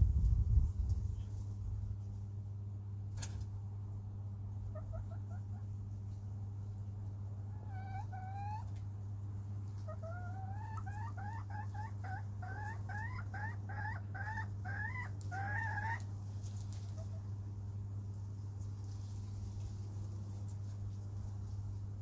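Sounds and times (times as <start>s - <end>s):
steady low hum: 0.0s - 22.0s
chicken calling: 4.6s - 5.8s, 7.4s - 8.8s, 9.8s - 16.1s.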